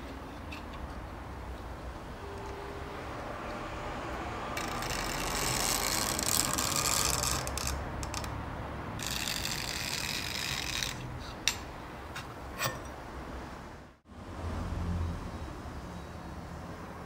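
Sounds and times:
steel rasping on abrasive paper: 4.6 - 7.7.

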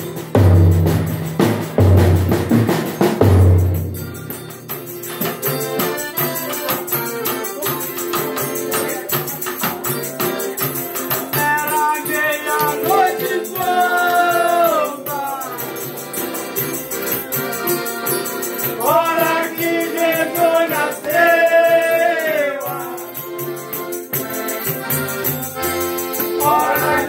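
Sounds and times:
heavy drum beats: 0.0 - 7.2
held instrument notes: 0.0 - 27.0
tambourine-like percussion: 0.0 - 27.0
people singing: 10.6 - 16.1, 18.6 - 23.4, 26.2 - 27.0.

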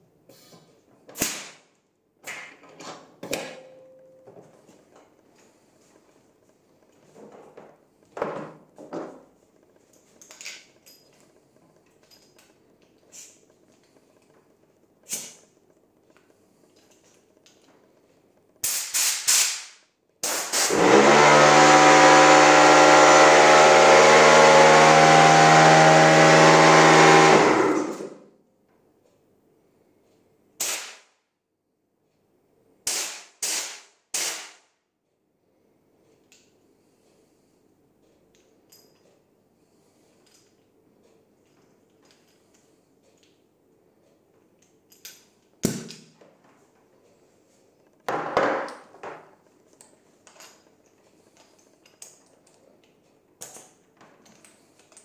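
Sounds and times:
compressed air blasts: 18.6 - 28.1, 32.9 - 34.6
compressor motor running: 20.2 - 28.3.

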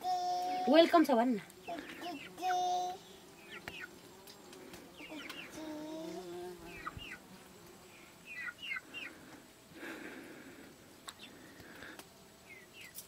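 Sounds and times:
chickens chirping and clucking: 1.6 - 2.8, 3.4 - 4.0, 4.9 - 5.7, 6.7 - 7.2, 8.2 - 9.3.

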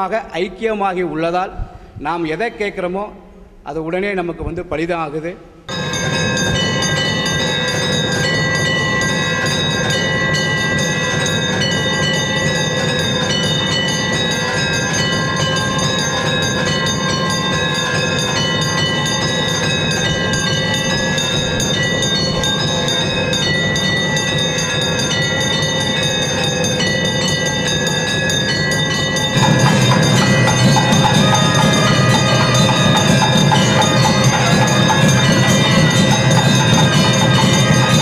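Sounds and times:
heavy metallic clanging: 5.7 - 38.0
temple bells ringing: 5.7 - 38.0.

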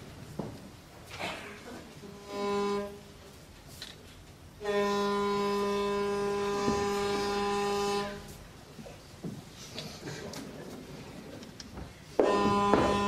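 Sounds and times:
ship's horn blasts: 2.0 - 3.2, 4.6 - 8.4, 12.2 - 13.0.

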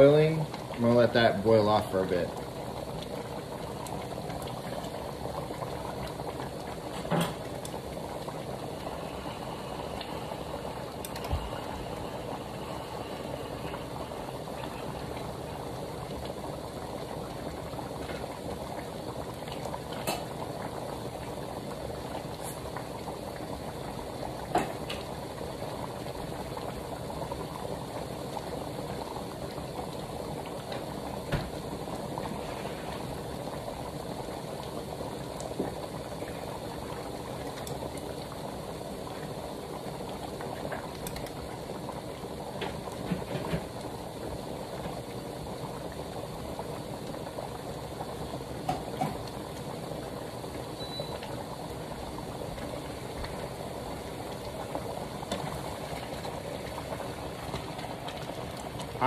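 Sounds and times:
sauce bubbling in a pan: 0.0 - 59.0.

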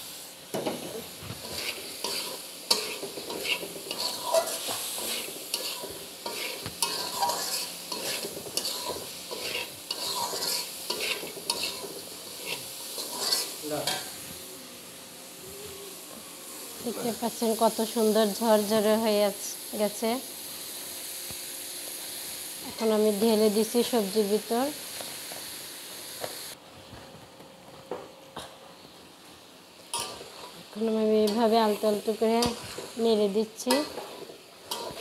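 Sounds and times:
oil sizzling: 0.0 - 26.6, 28.8 - 35.0
metal spatula scraping pan: 1.4 - 14.1, 33.6 - 35.0.

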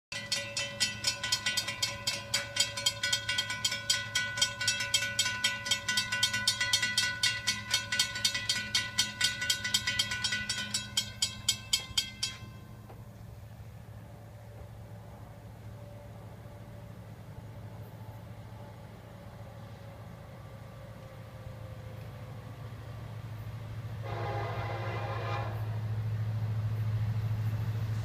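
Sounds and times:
railroad crossing bells ringing: 0.1 - 19.0.

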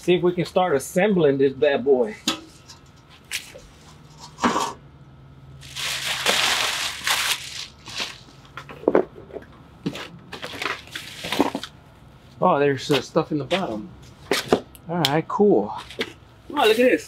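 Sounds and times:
plastic film crackling: 5.6 - 8.3
plastic packaging crinkling: 5.6 - 8.3.

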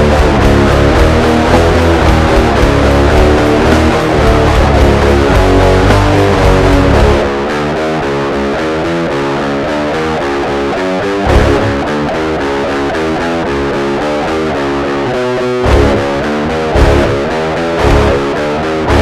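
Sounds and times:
heavy drum and bass hits: 0.0 - 7.8, 11.3 - 12.1, 15.6 - 19.0
distorted electric guitar riff: 0.0 - 19.0.

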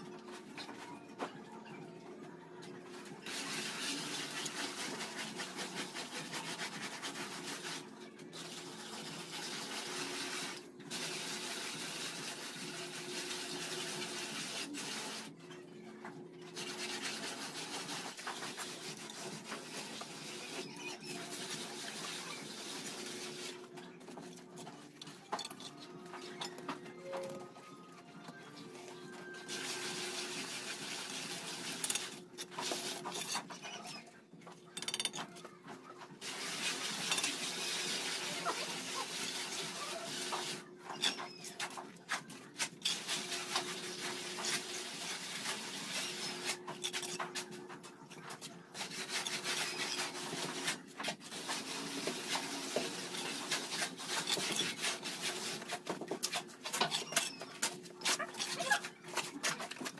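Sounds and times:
trowel scraping mortar: 31.6 - 34.1, 40.3 - 59.9.

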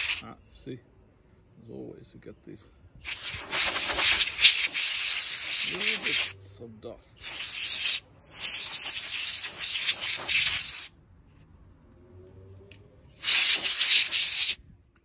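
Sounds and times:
air blow gun hissing: 0.0 - 0.2, 3.0 - 6.4, 7.2 - 10.9, 13.2 - 14.6.

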